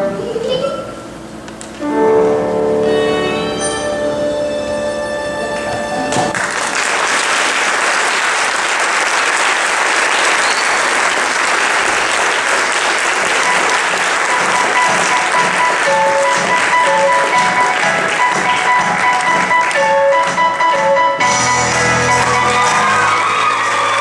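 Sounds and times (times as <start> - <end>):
quiet music: 1.8 - 6.3
audience applauding: 5.5 - 24.0.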